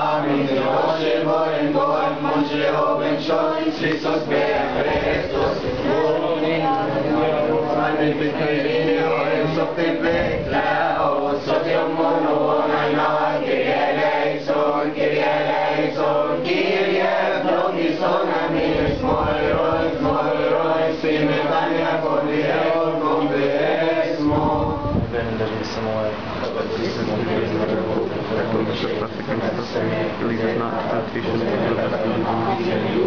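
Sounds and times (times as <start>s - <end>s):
group chanting: 0.0s - 24.9s, 31.4s - 33.0s.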